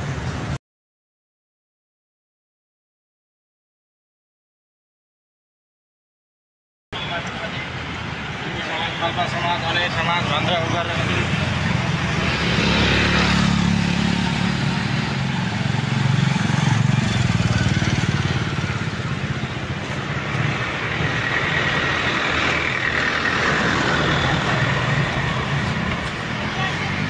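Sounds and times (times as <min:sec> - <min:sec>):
street traffic rumble: 0:00.0 - 0:00.6, 0:07.0 - 0:27.0.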